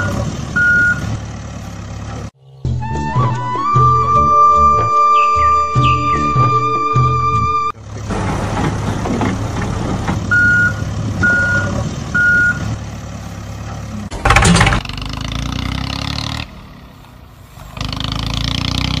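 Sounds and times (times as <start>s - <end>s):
vehicle reversing alarm beeps: 0.0s - 1.2s, 10.3s - 12.8s
truck engine running: 0.0s - 19.0s.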